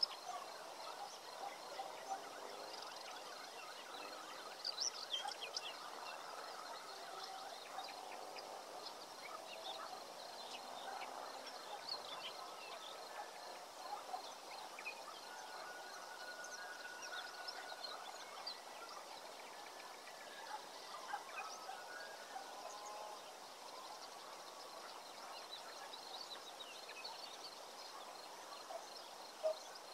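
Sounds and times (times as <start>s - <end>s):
faint steady hiss: 0.0s - 29.9s.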